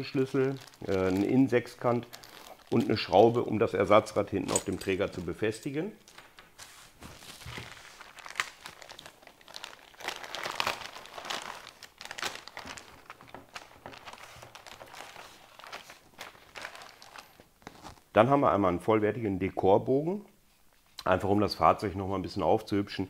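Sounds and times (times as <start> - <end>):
plastic bag crinkling: 0.0 - 5.4, 6.0 - 18.1.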